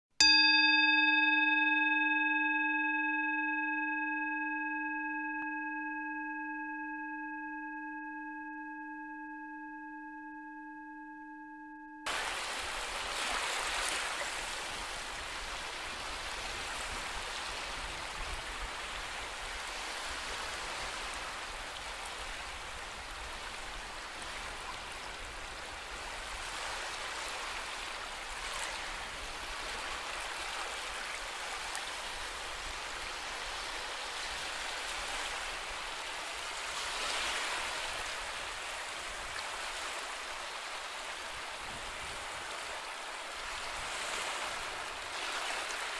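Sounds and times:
rushing water: 0:12.1 - 0:45.9.

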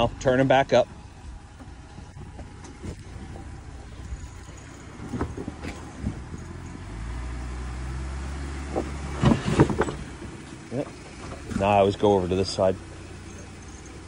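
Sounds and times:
vehicle engine crawling over rocks: 0:00.0 - 0:14.0
knocks and scrapes: 0:01.5 - 0:06.9, 0:08.6 - 0:12.2.

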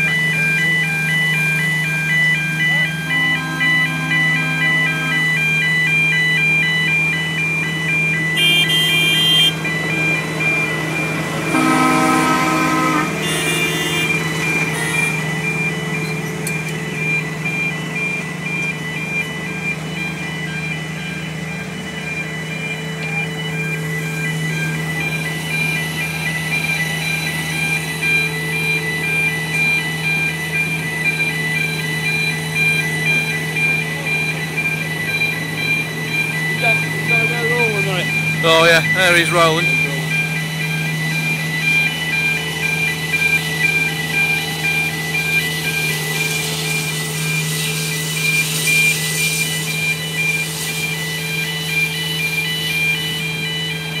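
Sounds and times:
diesel locomotive engine drone: 0:00.0 - 0:54.0
level crossing two-tone alarm: 0:00.0 - 0:54.0
locomotive horn: 0:02.5 - 0:05.7, 0:08.3 - 0:09.7, 0:11.3 - 0:15.3
short high-pitched horn blast: 0:03.1 - 0:05.5, 0:08.4 - 0:09.6, 0:11.5 - 0:15.2.

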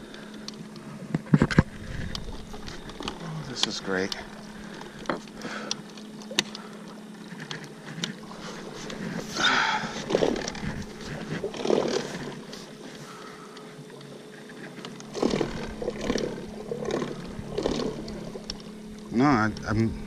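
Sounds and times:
electric trolling motor humming: 0:00.0 - 0:20.0
rough scraping noises: 0:07.3 - 0:13.1.

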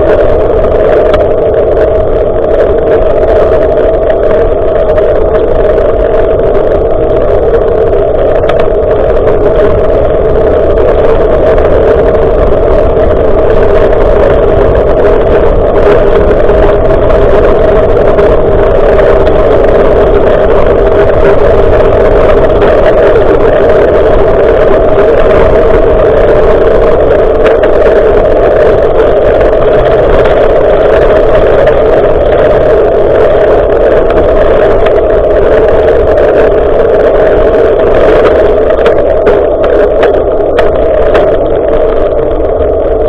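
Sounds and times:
wind rush on microphone: 0:00.0 - 0:43.0.

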